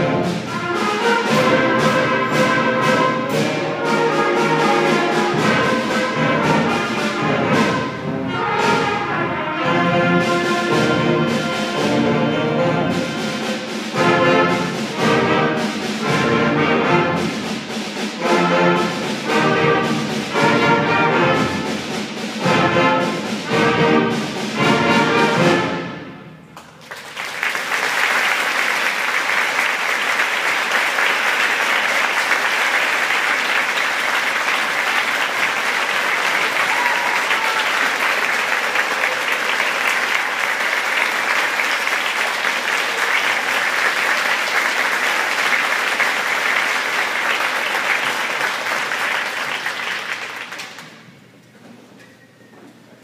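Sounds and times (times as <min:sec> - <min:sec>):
concert band playing: 0:00.0 - 0:26.5
audience applause: 0:26.6 - 0:51.1.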